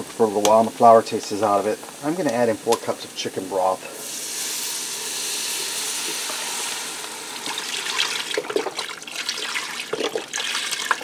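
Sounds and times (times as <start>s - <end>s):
broth pouring and glugging into pot: 3.9s - 11.0s.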